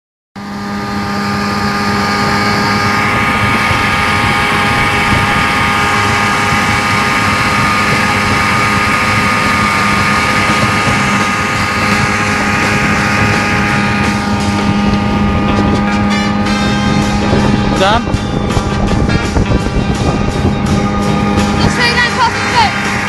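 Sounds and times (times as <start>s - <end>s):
outboard motor running: 0.4s - 23.0s.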